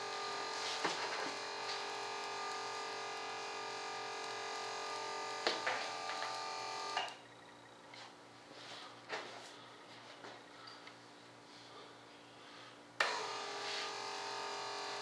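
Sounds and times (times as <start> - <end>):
electric fuel pump whine: 0.0 - 8.0, 13.0 - 15.0.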